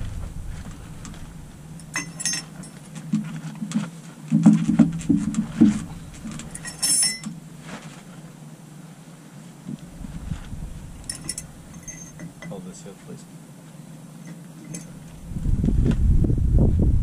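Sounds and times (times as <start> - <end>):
metal clinks and low knocks: 0.0 - 2.9, 4.4 - 7.4, 11.0 - 12.6, 14.2 - 15.1
steady low hum: 0.0 - 17.0.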